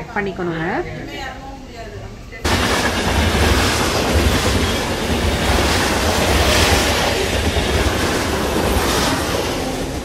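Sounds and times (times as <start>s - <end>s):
high rail noise: 2.4s - 10.0s
train wheels rumbling on rails: 2.4s - 10.0s.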